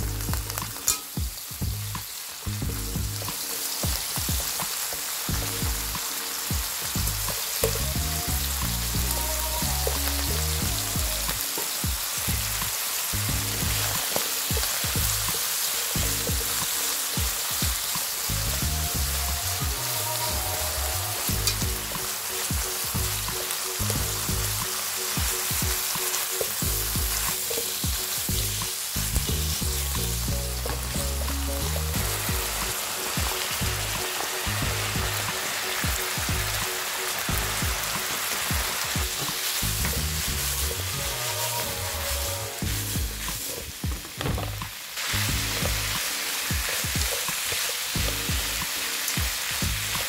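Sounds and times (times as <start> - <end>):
pork and potato sizzling in oil: 0.0 - 50.0
chopsticks stirring in wok: 23.0 - 35.6, 36.8 - 44.2.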